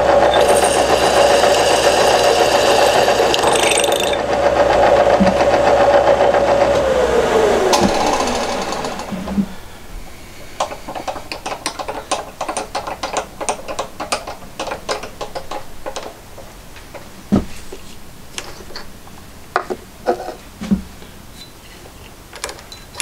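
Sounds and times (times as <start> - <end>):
power tool motor whining: 0.0 - 5.5, 6.4 - 11.0.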